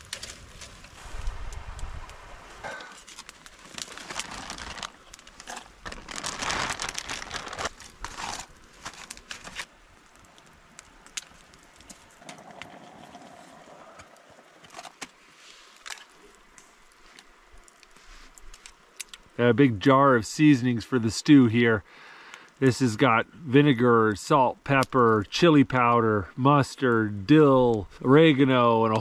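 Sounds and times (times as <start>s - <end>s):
campfire crackling: 0.0s - 29.0s.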